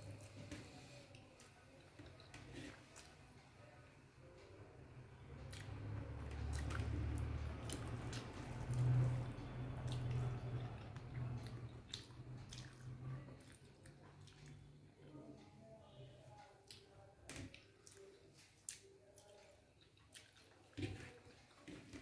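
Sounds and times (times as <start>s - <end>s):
chewing: 5.4s - 15.2s, 16.6s - 22.0s.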